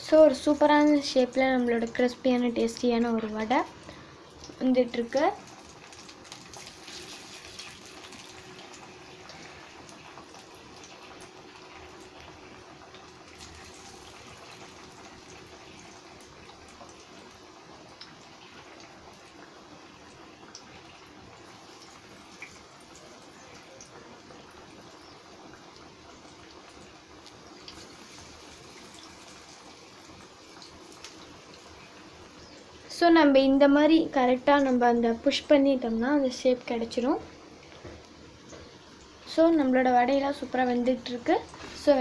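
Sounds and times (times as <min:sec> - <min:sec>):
oil popping and crackling: 0:00.0 - 0:33.5
fritters sizzling in hot oil: 0:00.0 - 0:42.0.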